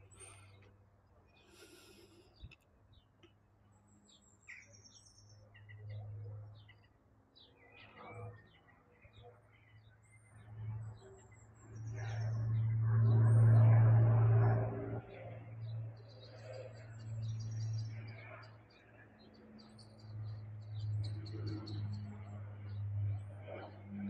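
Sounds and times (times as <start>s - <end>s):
distant aircraft engines droning: 0.0s - 24.0s
small birds chirping: 1.3s - 12.8s.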